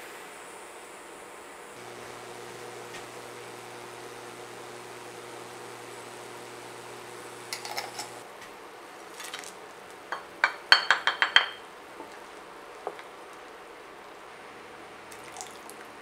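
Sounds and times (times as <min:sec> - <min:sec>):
low steady hum: 0:00.4 - 0:09.0
utensils clinking on steel pan: 0:07.5 - 0:08.2, 0:10.1 - 0:11.6.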